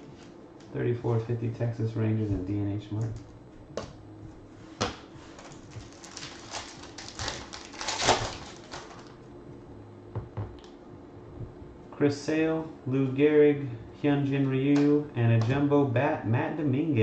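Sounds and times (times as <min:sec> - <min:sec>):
foil wrapper crinkling: 0:05.3 - 0:09.2.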